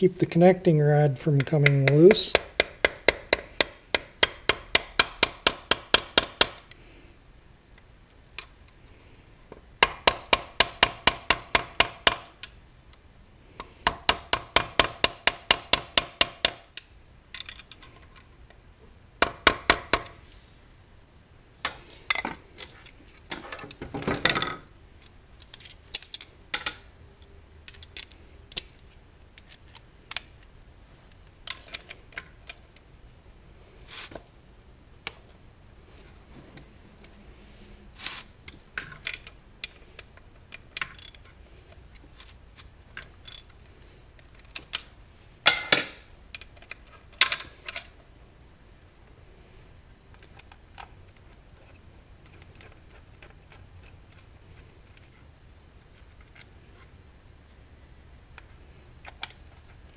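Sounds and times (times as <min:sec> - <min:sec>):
tools clinking on metal: 0:58.8 - 0:59.9.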